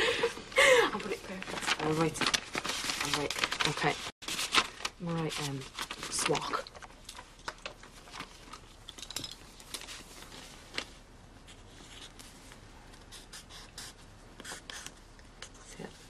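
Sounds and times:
paper rustling: 1.0 - 8.7.

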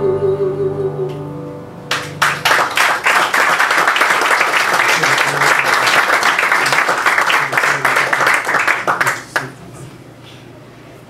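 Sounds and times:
person singing ballad: 0.0 - 1.5
piano and double bass: 0.0 - 4.1
audience applause: 1.9 - 9.6.

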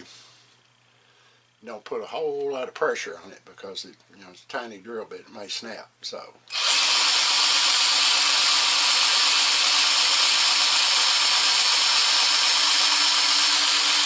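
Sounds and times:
cordless drill whirring: 6.5 - 14.0.

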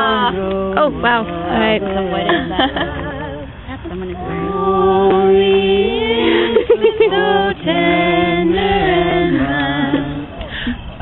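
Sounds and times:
steady low note: 0.0 - 11.0.

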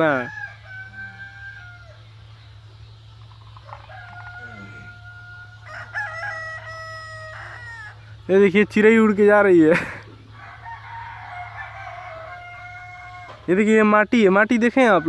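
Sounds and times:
roosters crowing: 0.0 - 15.0.

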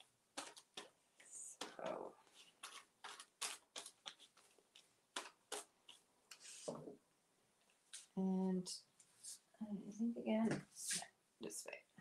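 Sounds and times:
plastic sheet crinkling: 0.0 - 6.6.

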